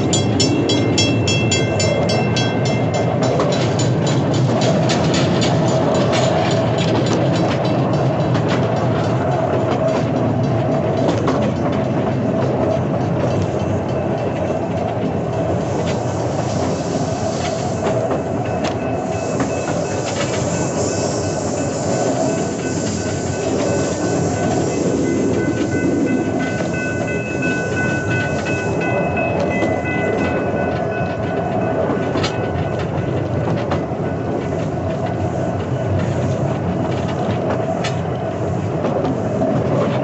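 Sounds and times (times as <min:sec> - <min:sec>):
rail wheel rumble: 0:00.0 - 0:40.0
clicks at rail joints: 0:01.8 - 0:40.0
high wheel squeal: 0:15.9 - 0:32.7.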